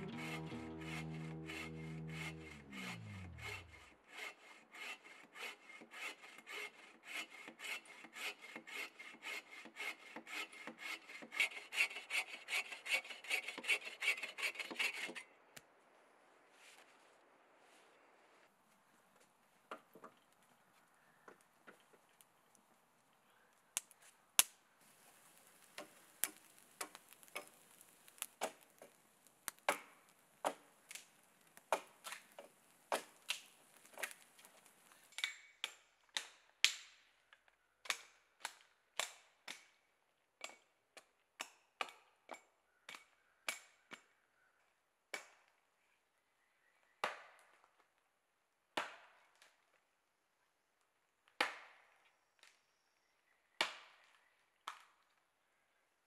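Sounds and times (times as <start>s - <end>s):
campfire crackling and snapping: 21.4s - 36.9s.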